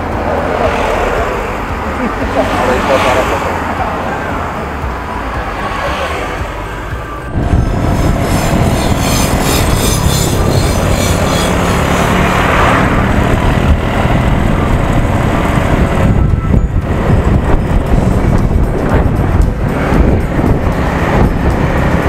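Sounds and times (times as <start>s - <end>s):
road noise: 0.0s - 22.0s
wind rumble on microphone: 6.9s - 22.0s
scooter engine: 7.3s - 22.0s.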